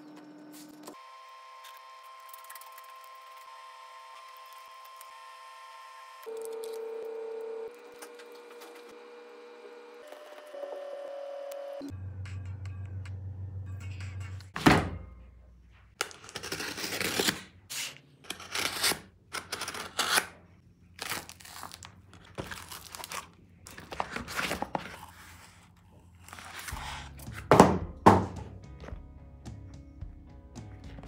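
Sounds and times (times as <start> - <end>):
packing tape ripping: 16.0 - 20.3, 21.0 - 25.1.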